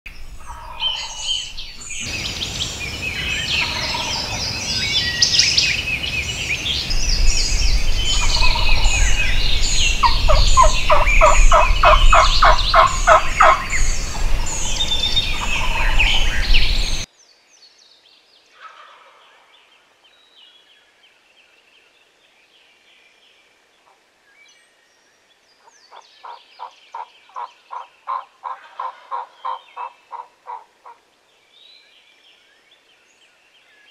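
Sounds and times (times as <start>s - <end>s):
songbirds singing: 0.1s - 33.9s
turkey calls: 0.4s - 4.6s, 8.0s - 17.1s, 18.6s - 19.5s, 25.9s - 31.0s.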